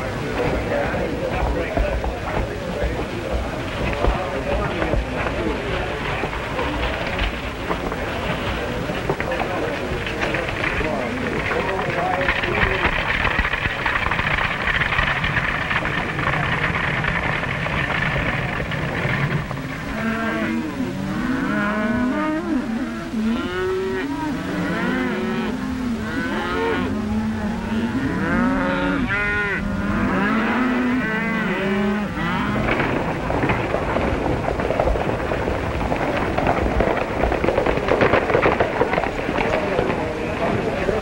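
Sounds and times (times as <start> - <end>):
horses galloping: 0.0 - 41.0
rumble of moving herd: 0.0 - 41.0
cattle mooing: 19.9 - 33.6.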